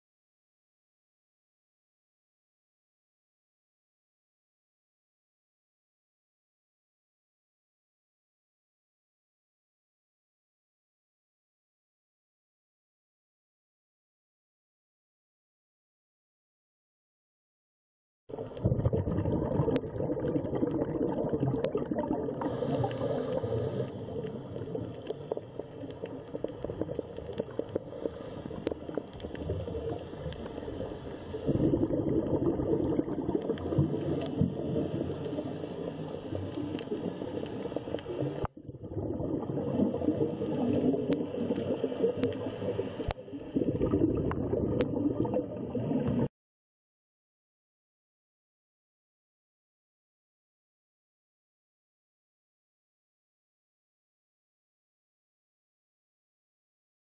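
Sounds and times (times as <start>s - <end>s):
underwater bubbling rush: 18.3s - 46.3s
sharp underwater clicks: 22.5s - 31.4s.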